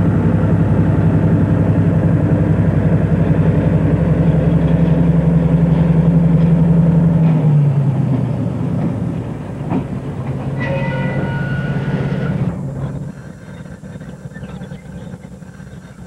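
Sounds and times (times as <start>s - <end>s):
diesel locomotive passing: 0.0s - 16.0s
freight cars clanking: 3.0s - 16.0s
high squeal: 10.5s - 13.7s.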